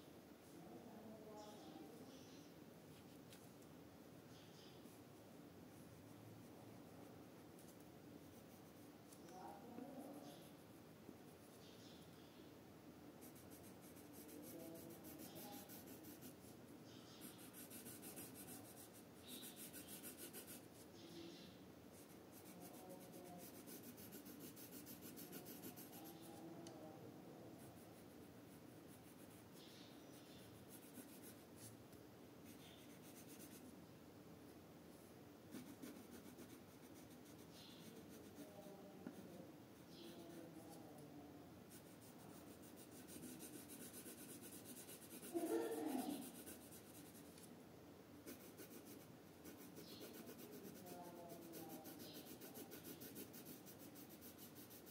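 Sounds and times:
pencil scratching on paper: 0:13.2 - 0:21.0, 0:21.9 - 0:26.5, 0:27.6 - 0:31.7, 0:32.4 - 0:33.7, 0:35.5 - 0:40.8, 0:41.7 - 0:47.5, 0:48.2 - 0:54.9.

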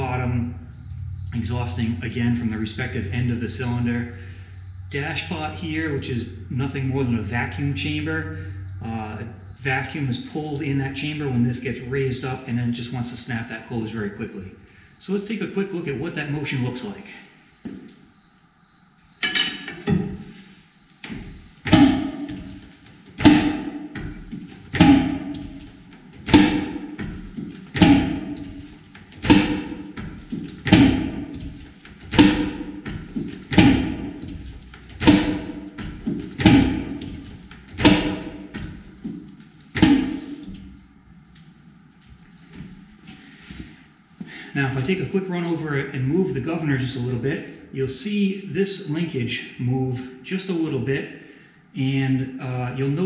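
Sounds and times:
light mechanical knocks: 0:21.0 - 0:40.8
sharp metallic valve clacks: 0:21.7 - 0:23.7, 0:24.3 - 0:40.6.

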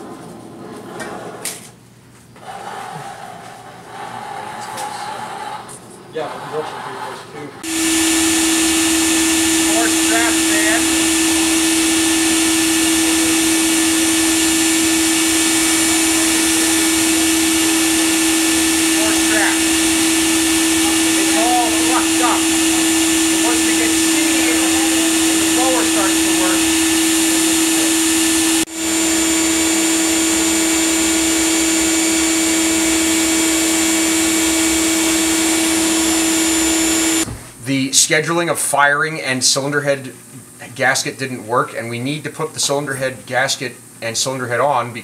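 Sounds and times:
electric blower motor humming: 0:07.6 - 0:37.3.

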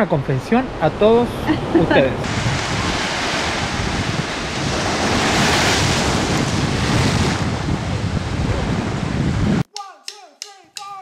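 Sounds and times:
wind buffeting microphone: 0:00.6 - 0:09.7
ocean surf breaking on beach: 0:01.4 - 0:09.4.

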